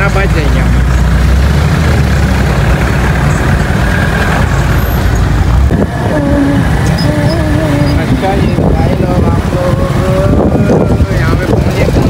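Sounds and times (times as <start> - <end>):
traffic engines rumbling: 0.0 - 12.0
wavering high tone: 5.9 - 8.2.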